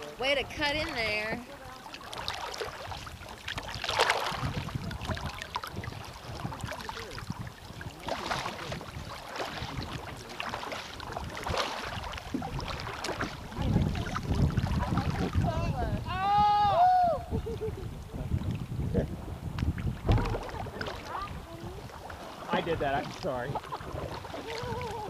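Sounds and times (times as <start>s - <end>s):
paddle splashing in water: 0.0s - 25.0s
water washing along hull: 0.0s - 25.0s
wind rumble on microphone: 0.1s - 25.0s.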